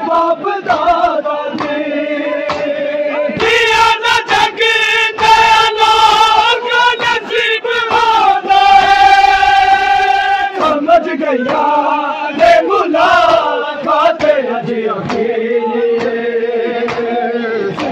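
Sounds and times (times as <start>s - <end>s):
men's voices chanting a lament: 0.0s - 17.9s
chest-beating slaps: 1.5s - 1.8s, 15.0s - 15.3s, 16.8s - 17.1s.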